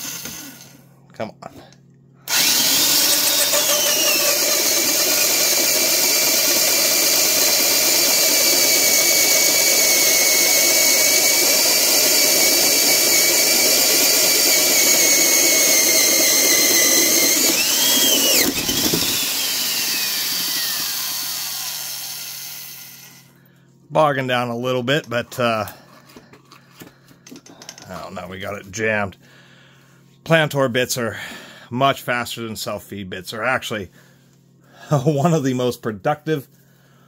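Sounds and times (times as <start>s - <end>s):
drill boring through wood: 0.0s - 0.8s, 2.3s - 23.3s.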